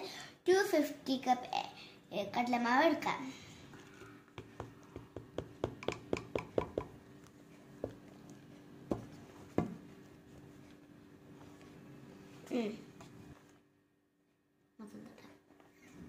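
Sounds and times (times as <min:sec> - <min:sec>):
plastic jar tapping plastic cup: 0:04.4 - 0:07.0.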